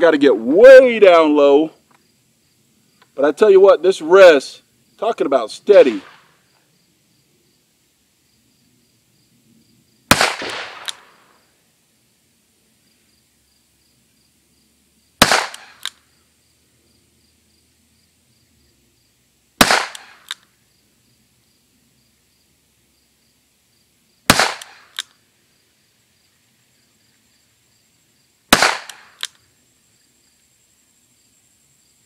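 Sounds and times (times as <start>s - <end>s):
revolver gunshots: 5.7s - 6.3s, 10.1s - 11.3s, 15.2s - 15.9s, 19.6s - 20.3s, 24.3s - 25.0s, 28.5s - 29.3s
small sharp click: 15.5s - 16.0s, 19.9s - 20.5s, 24.6s - 25.2s, 28.8s - 29.4s.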